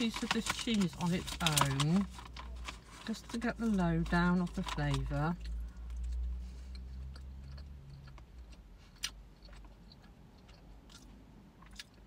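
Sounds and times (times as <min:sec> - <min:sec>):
quiet chewing: 0:04.5 - 0:12.0.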